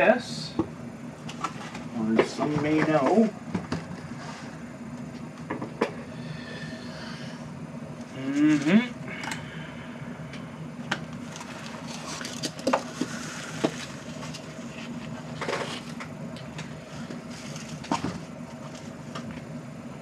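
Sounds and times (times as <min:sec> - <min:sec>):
cardboard and plastic rustling: 0:11.2 - 0:16.0, 0:17.0 - 0:19.3.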